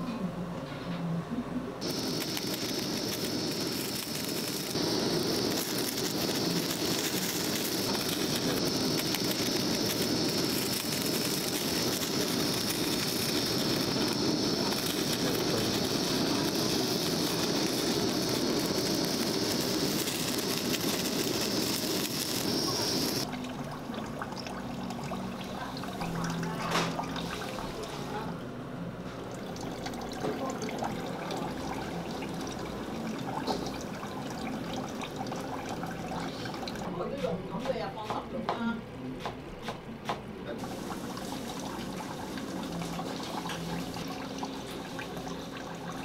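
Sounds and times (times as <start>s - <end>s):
blowtorch flame hissing: 1.8s - 23.3s, 29.3s - 37.3s, 40.6s - 46.0s.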